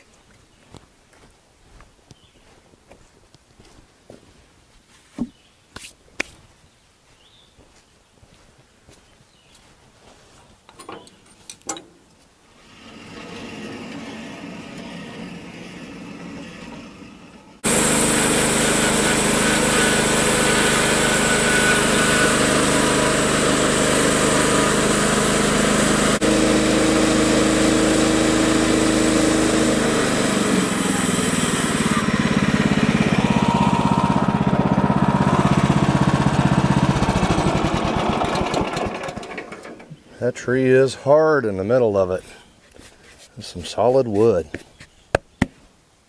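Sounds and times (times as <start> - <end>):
bandsaw mill cutting wood: 12.5 - 39.9.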